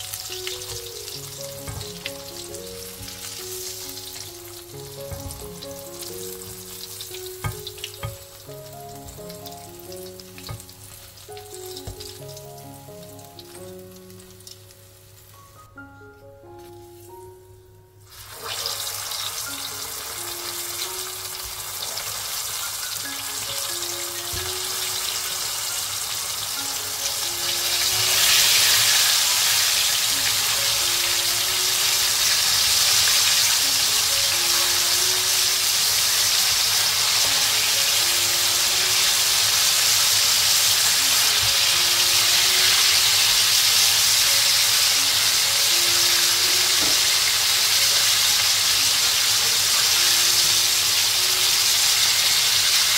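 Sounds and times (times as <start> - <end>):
chicken frying in hot oil: 0.0 - 15.6, 18.0 - 52.9.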